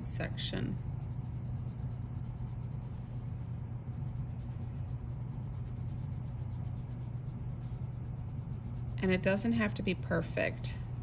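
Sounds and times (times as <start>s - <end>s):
pencil scratching across paper: 0.0s - 11.0s
steady low hum: 0.0s - 11.0s.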